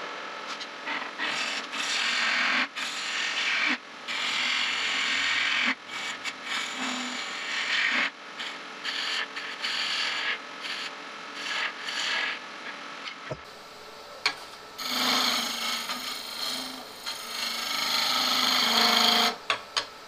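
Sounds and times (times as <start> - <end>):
lathe gouge cutting wood: 14.8 - 19.4.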